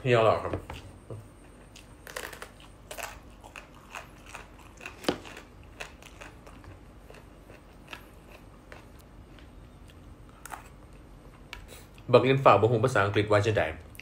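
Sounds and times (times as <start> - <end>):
person crunching pod: 1.8 - 9.0.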